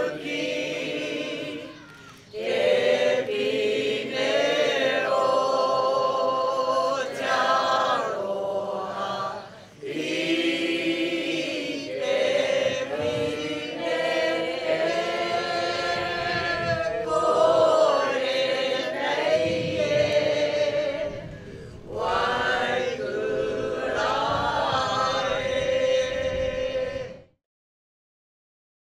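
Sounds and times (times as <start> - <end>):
group of voices singing: 0.0 - 27.4.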